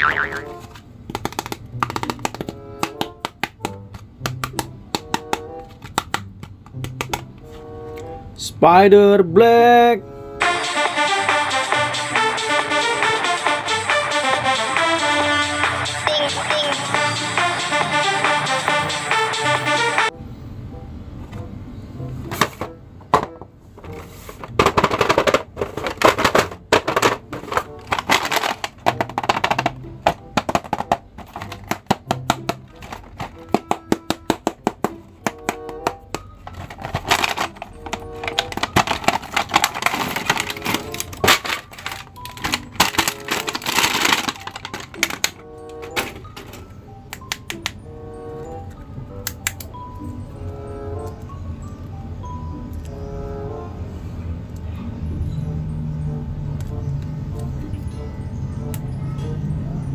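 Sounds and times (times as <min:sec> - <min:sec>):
background music: 0:00.0 - 0:59.9
cardboard boxes clicking and crackling: 0:00.1 - 0:06.3, 0:23.8 - 0:46.4.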